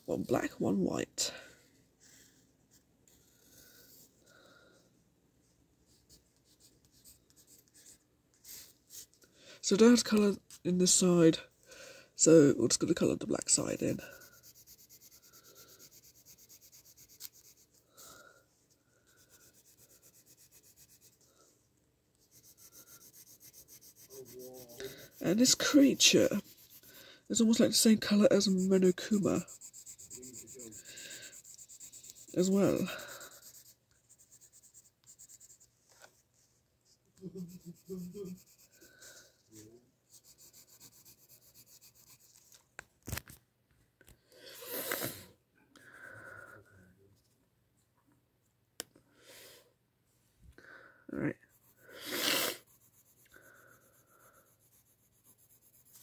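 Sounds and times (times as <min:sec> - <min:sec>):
pencil scratching on paper: 0:05.9 - 0:09.1, 0:12.8 - 0:18.2, 0:19.0 - 0:21.5, 0:22.1 - 0:35.7, 0:37.2 - 0:42.6, 0:51.2 - 0:56.0.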